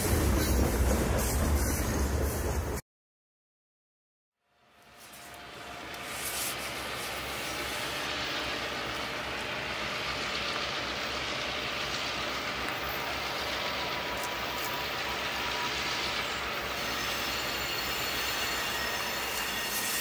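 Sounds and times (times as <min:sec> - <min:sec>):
faint steady squeal: 0:04.6 - 0:20.0
locomotive engine rumble: 0:04.8 - 0:19.9
wheels rolling on track: 0:05.0 - 0:20.0.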